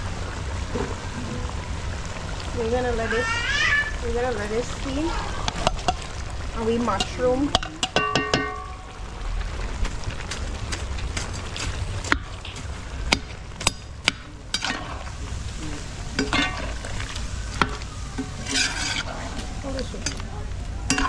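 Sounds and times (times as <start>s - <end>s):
faint sizzle: 0.0s - 21.0s
utensil scraping vegetables in pot: 18.2s - 20.2s.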